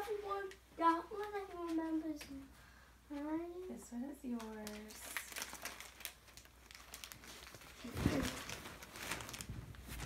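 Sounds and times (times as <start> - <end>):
plastic wrappers rustling and crinkling: 3.1 - 10.0.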